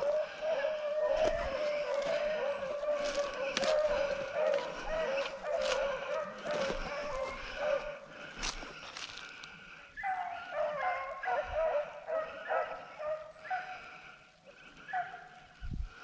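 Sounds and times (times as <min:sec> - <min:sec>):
dogs baying: 0:00.0 - 0:15.6.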